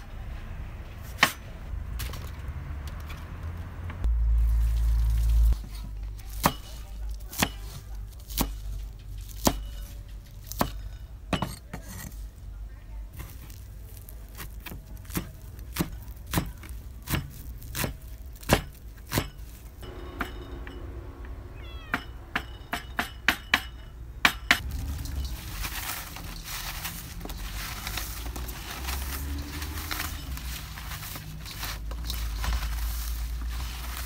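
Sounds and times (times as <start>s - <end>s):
cat meowing: 21.4s - 22.3s
hands rustling in steel bowl: 24.6s - 34.0s.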